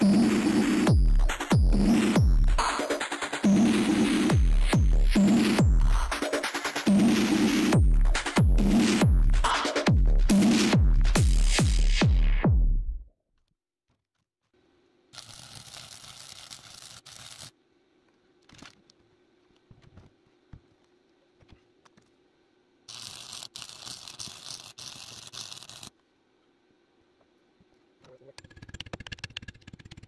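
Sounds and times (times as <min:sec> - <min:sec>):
background music: 0:00.0 - 0:12.6
faint steady hum: 0:14.5 - 0:28.6
welding arc crackling and hissing: 0:15.1 - 0:17.6, 0:22.9 - 0:25.9.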